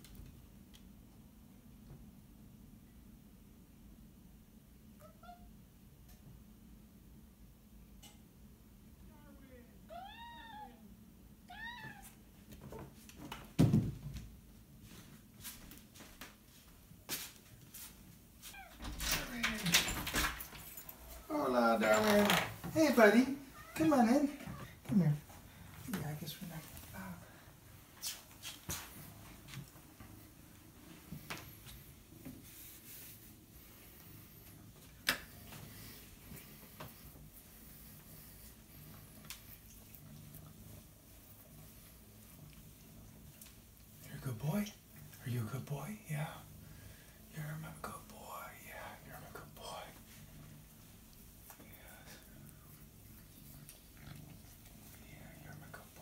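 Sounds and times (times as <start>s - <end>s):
cat meowing: 5.0s - 5.5s, 9.9s - 12.2s, 23.5s - 24.6s.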